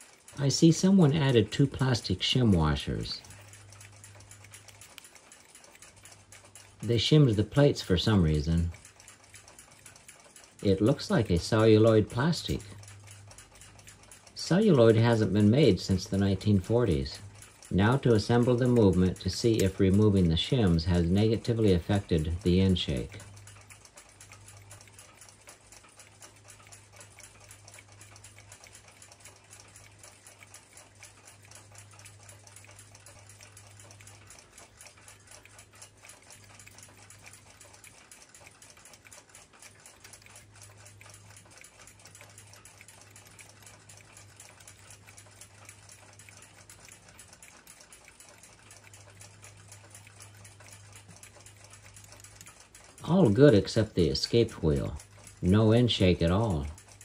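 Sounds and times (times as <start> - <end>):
tweezers clicking on metal parts: 0.0 - 57.0.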